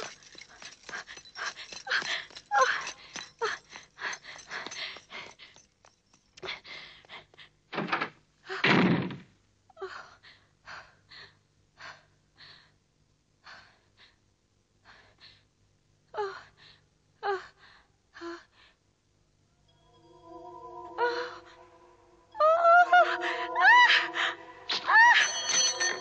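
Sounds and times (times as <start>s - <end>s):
woman gasping and panting: 0.0s - 5.7s.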